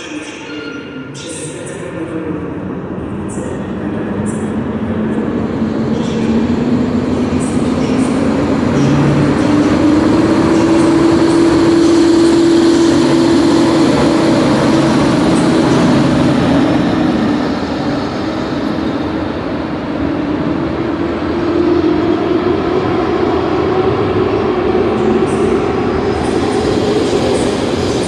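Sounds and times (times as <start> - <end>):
electric train passing: 0.0 - 28.0.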